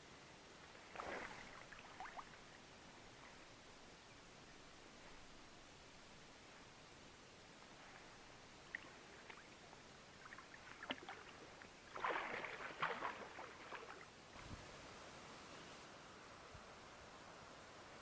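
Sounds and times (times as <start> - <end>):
water splashing and sloshing: 0.7 - 2.6, 7.8 - 14.2.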